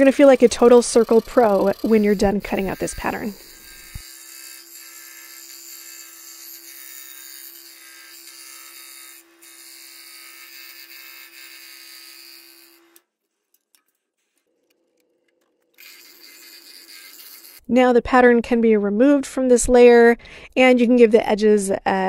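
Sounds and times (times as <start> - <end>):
scroll saw cutting wood: 0.0 - 13.1, 15.0 - 17.7.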